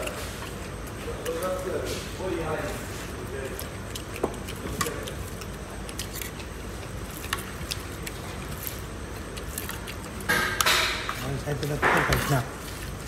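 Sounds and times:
low background noise: 0:00.0 - 0:13.0
chewing and smacking: 0:02.9 - 0:13.0.

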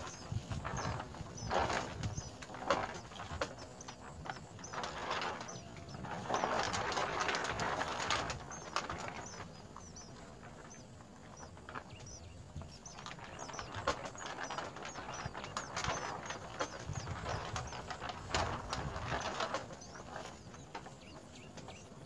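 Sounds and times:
rustling of nest grass: 0:00.0 - 0:22.0
high bird chirps: 0:08.4 - 0:18.0.

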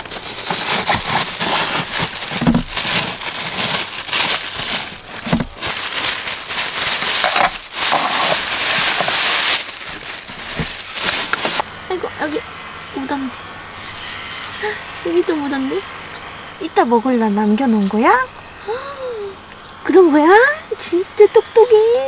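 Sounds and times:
plastic bag rustling: 0:00.0 - 0:11.6.

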